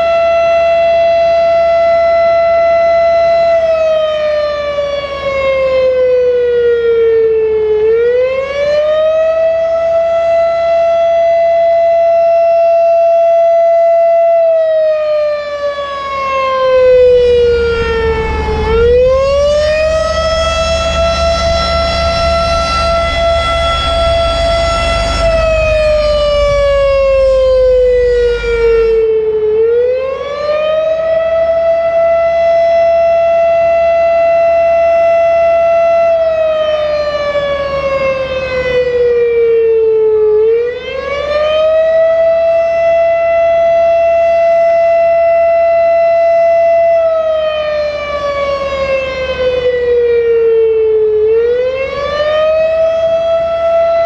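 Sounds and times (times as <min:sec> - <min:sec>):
warning siren rising and falling: 0:00.0 - 0:54.0
low rumble: 0:16.7 - 0:29.2.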